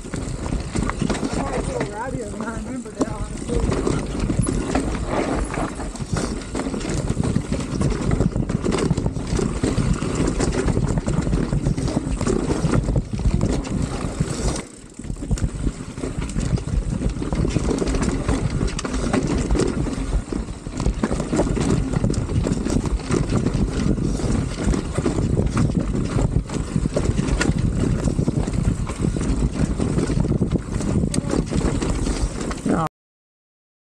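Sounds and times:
mountain bike rattling on trail: 0:00.0 - 0:32.9
wheels knocking on rocks: 0:00.0 - 0:32.9
wind buffeting microphone: 0:00.0 - 0:32.9.

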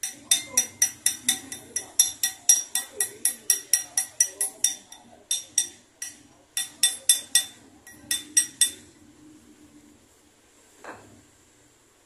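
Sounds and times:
hammer tapping metal ring: 0:00.0 - 0:08.9.

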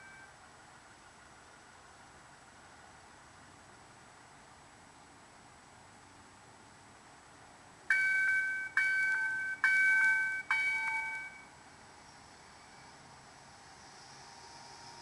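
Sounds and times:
train warning bell ringing: 0:00.0 - 0:00.4, 0:07.9 - 0:11.5.

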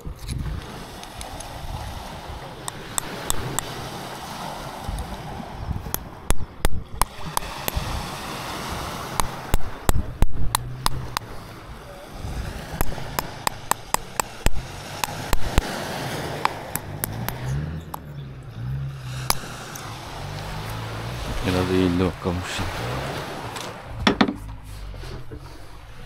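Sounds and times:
sharp knocks on metal fitting: 0:12.8 - 0:15.6, 0:24.0 - 0:24.4.

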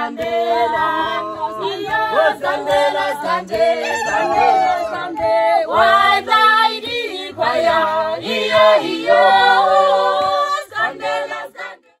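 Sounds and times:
voices singing in harmony: 0:00.0 - 0:12.0.

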